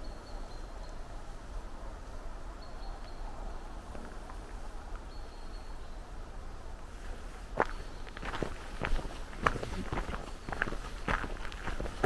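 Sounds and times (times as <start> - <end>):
footsteps on forest floor: 7.0 - 12.0.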